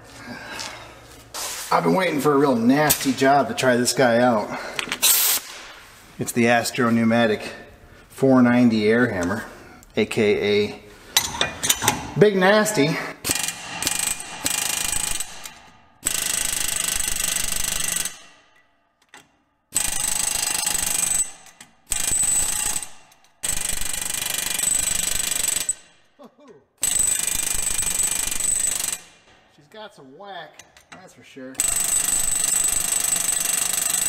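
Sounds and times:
pneumatic air hammer hammering: 0:13.2 - 0:18.5, 0:19.7 - 0:26.0, 0:26.8 - 0:29.3, 0:31.6 - 0:34.0.

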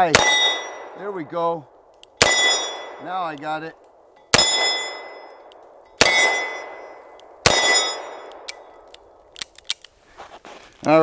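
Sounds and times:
revolver gunshots: 0:00.0 - 0:01.2, 0:02.2 - 0:03.3, 0:04.3 - 0:05.4, 0:06.0 - 0:08.7
steel target plate clang: 0:02.2 - 0:03.0, 0:04.2 - 0:08.3.

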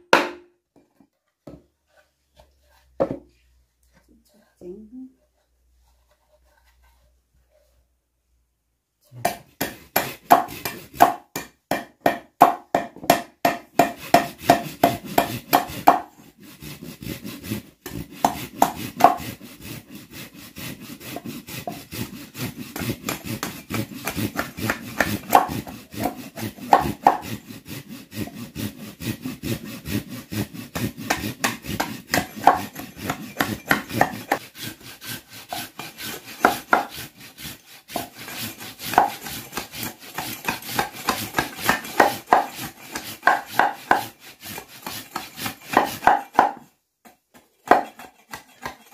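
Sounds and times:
knock: 0:03.0 - 0:03.3
hand saw cutting wood: 0:09.2 - 0:46.7, 0:47.4 - 0:48.9.

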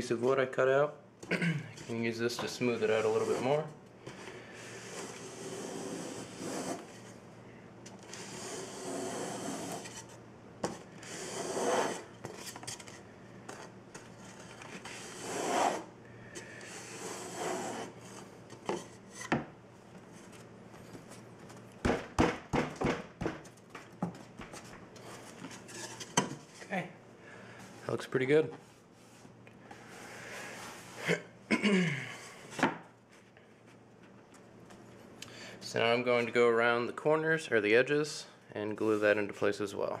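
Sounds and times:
wood rubbing across vinyl liner: 0:04.7 - 0:07.1, 0:08.1 - 0:10.2, 0:11.0 - 0:12.6, 0:14.3 - 0:15.9, 0:16.7 - 0:18.3.

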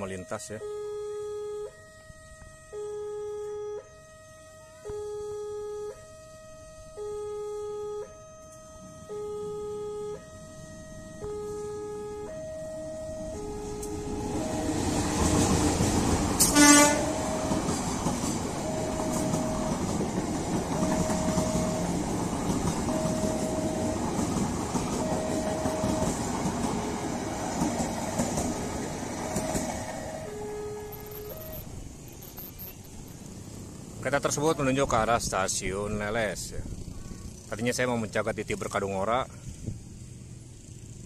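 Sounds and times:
level-crossing two-note alarm: 0:00.0 - 0:27.4, 0:28.5 - 0:32.8
locomotive horn blast: 0:13.1 - 0:15.6, 0:16.4 - 0:18.0, 0:18.6 - 0:19.9, 0:22.9 - 0:24.2, 0:24.9 - 0:27.4, 0:28.6 - 0:31.7
train wheels clattering on rails: 0:13.8 - 0:30.1.

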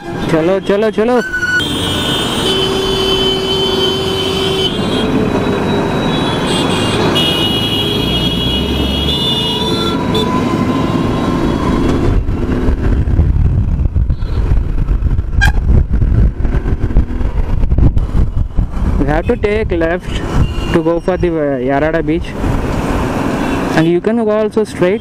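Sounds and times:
traffic: 0:00.0 - 0:25.0
wind buffeting microphone: 0:10.4 - 0:23.2.

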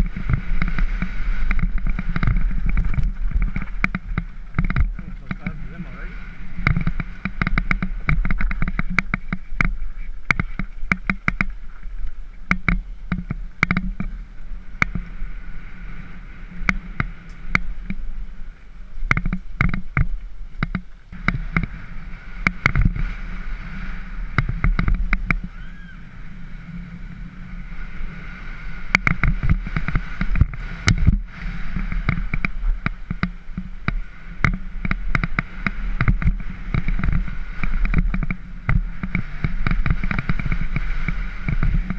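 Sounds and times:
bike frame and chain rattling: 0:00.0 - 0:15.0
tyres rumbling on gravel: 0:00.0 - 0:41.9
wind on camera: 0:00.0 - 0:41.9.

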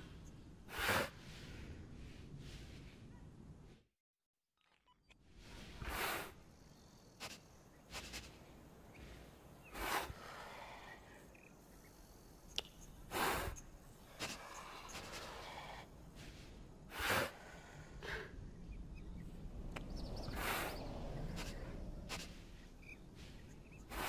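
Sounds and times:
gorilla huffing: 0:16.9 - 0:18.4.

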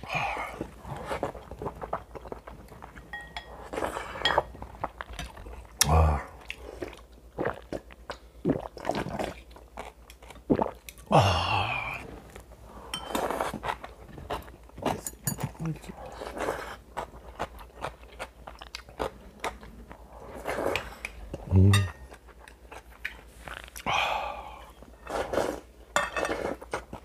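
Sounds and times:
wet chewing and smacking: 0:00.0 - 0:03.1, 0:06.4 - 0:11.1, 0:13.2 - 0:21.4.

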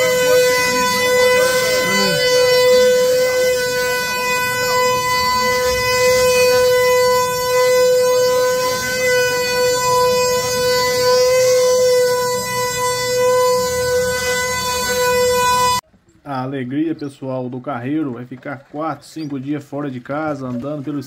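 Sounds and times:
faint wavering tones: 0:00.0 - 0:15.8
wooden cart axle droning: 0:00.0 - 0:15.8.

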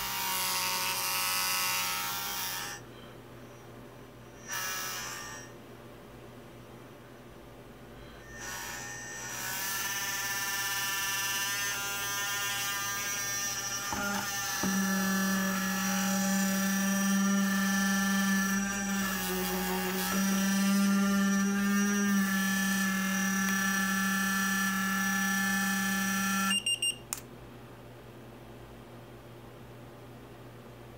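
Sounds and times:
gimbal motors buzzing: 0:08.2 - 0:26.5.

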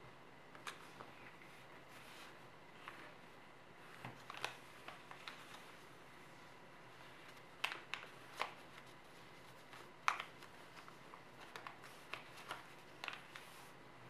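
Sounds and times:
paper crackling while folded: 0:03.8 - 0:13.8.

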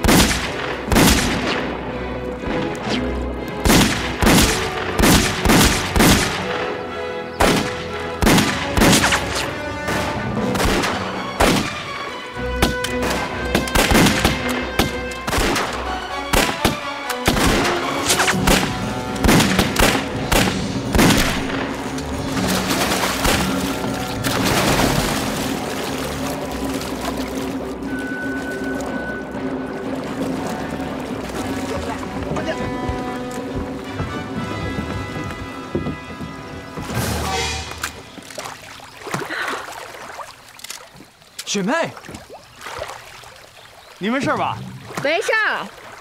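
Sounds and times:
dramatic background music: 0:00.0 - 0:39.0
pistol shots: 0:07.4 - 0:09.4, 0:10.5 - 0:11.8, 0:12.6 - 0:21.6.

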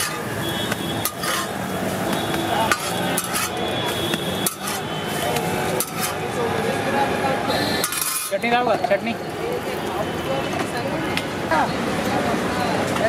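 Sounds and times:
metal spatula scraping griddle: 0:00.0 - 0:02.0, 0:02.6 - 0:06.3, 0:07.8 - 0:08.6
frying sizzle: 0:00.0 - 0:06.2.

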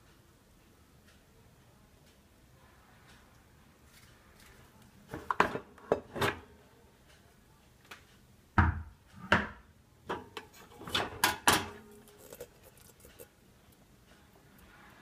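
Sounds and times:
dishes knocking and clinking: 0:05.1 - 0:06.4, 0:08.6 - 0:12.4.

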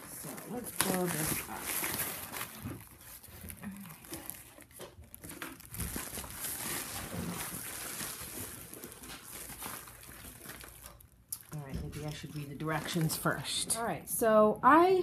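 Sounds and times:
nylon air mattress crinkling: 0:00.0 - 0:11.1.

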